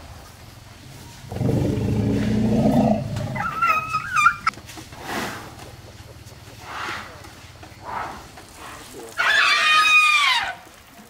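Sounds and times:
elephant calf roaring: 1.1s - 4.5s
elephant calf squealing: 1.2s - 4.5s, 9.2s - 10.6s.

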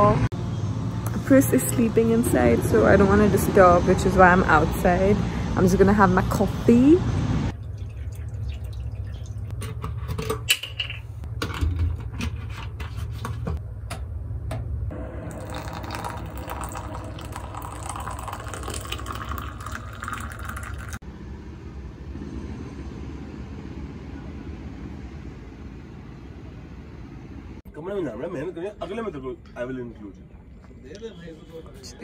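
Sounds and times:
water poured into kettle: 7.5s - 9.6s, 15.2s - 21.0s
hot water poured into cup: 15.0s - 21.0s.

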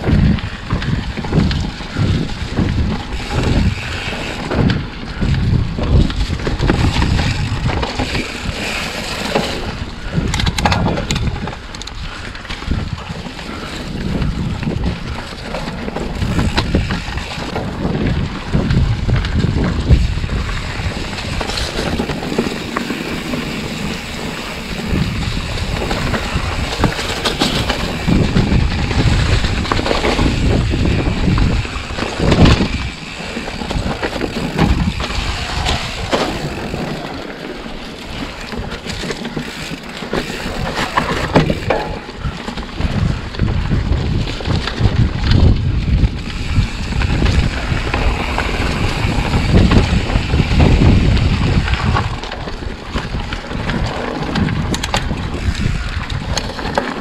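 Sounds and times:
bike knocks and rattles: 0.0s - 57.0s
bike tyres rolling over ground: 0.0s - 57.0s
wind buffeting microphone: 0.0s - 57.0s.

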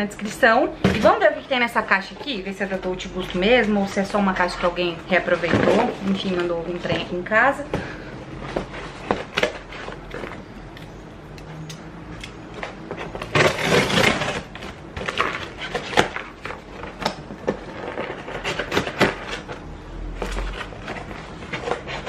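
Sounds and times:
cardboard box rustling and knocking: 5.3s - 7.2s.

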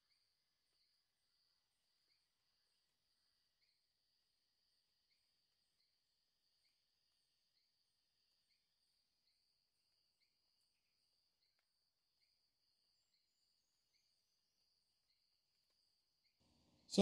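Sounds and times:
soft chirps: 0.0s - 17.0s.

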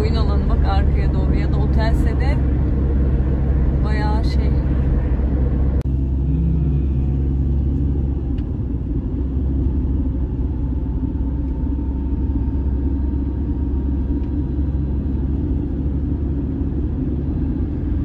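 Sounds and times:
car engine and tyre rumble: 0.0s - 18.0s.

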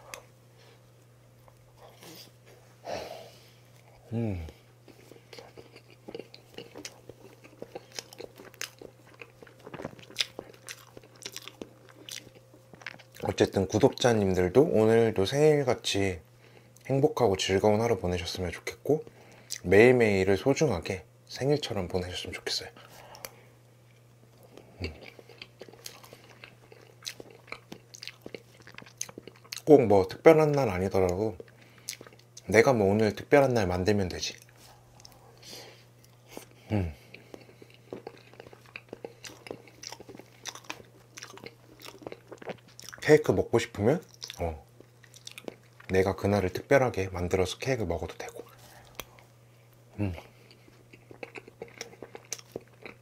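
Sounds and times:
faint low hum: 0.0s - 53.0s
chewing with wet mouth clicks: 4.8s - 14.1s, 23.2s - 29.7s, 30.5s - 32.5s, 36.0s - 43.2s, 44.0s - 46.0s, 48.1s - 49.3s, 50.1s - 53.0s.

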